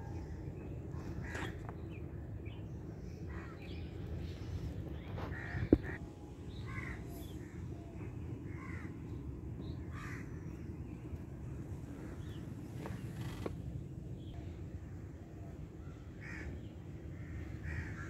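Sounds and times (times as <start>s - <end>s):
steady low rumble: 0.0s - 18.0s
birds harsh calls: 5.0s - 10.8s.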